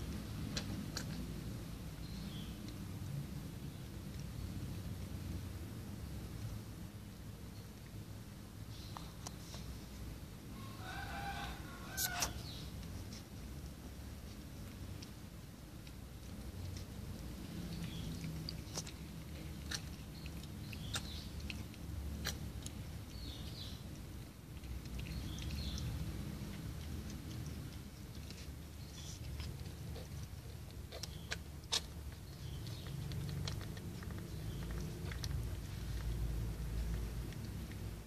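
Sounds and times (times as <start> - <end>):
small wet licking clicks: 0.0 - 9.8, 12.0 - 38.0
kittens squeaking: 11.8 - 12.6.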